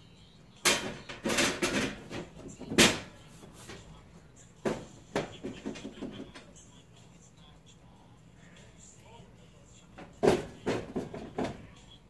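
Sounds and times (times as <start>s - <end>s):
metal panel cover clanking: 0.6s - 3.2s.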